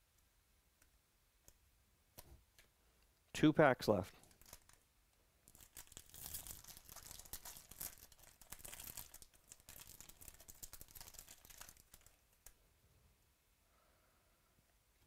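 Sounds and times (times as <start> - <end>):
foil wrapper crinkling and tearing: 4.2 - 4.8, 5.5 - 12.6.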